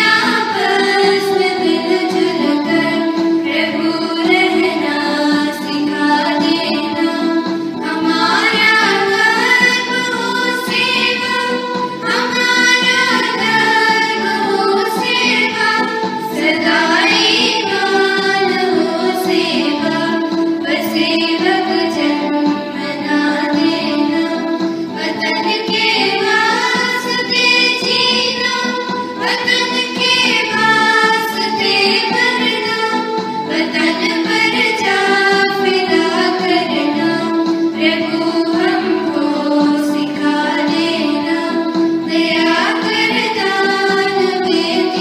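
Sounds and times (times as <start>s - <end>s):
children singing together: 0.0s - 45.0s.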